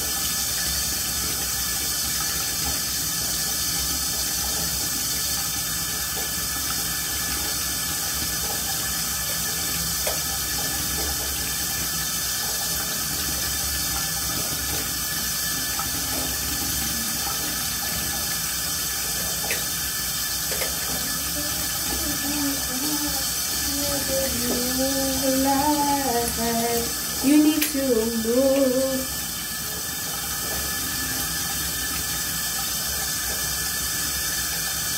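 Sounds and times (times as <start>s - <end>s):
water running from tap: 0.0s - 34.9s
person singing: 20.9s - 29.2s.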